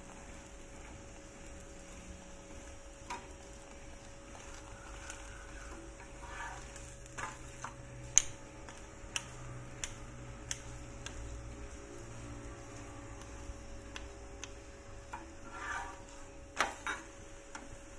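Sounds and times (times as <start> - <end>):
faint sizzle of frying: 0.0 - 17.9.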